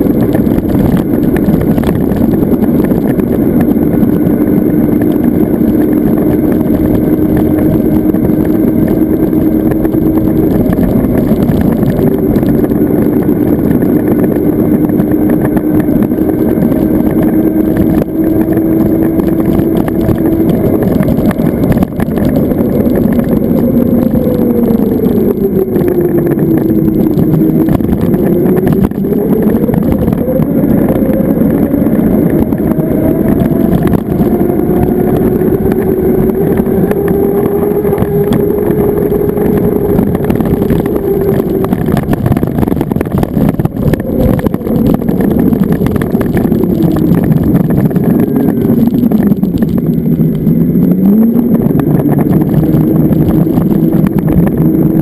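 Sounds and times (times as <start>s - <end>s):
electric motorcycle whine: 0.0s - 55.0s
rushing noise: 0.0s - 55.0s.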